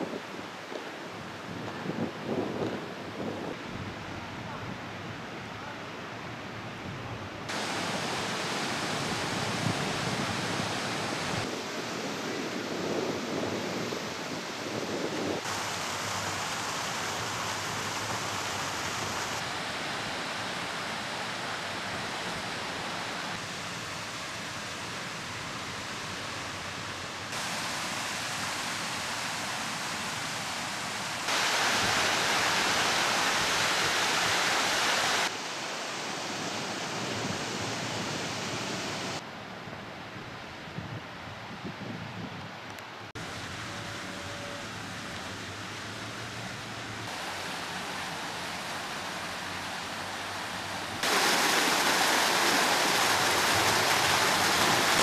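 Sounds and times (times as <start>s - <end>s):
water fountains splashing: 43.2s - 55.0s.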